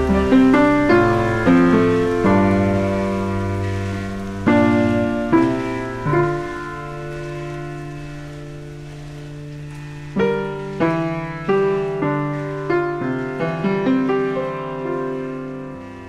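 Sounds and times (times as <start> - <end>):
slow piano notes: 0.0 - 16.0
soft held low chord: 0.0 - 16.0.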